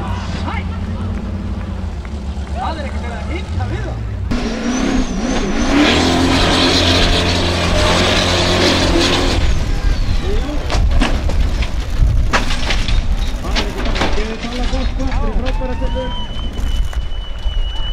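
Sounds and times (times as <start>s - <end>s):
buggy engine revving: 0.0s - 15.4s
buggy crashing and rolling: 4.3s - 17.9s.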